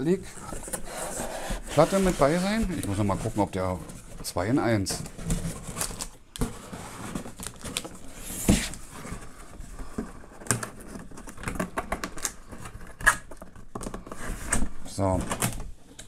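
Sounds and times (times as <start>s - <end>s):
cardboard box scraping and rustling: 0.2s - 10.3s.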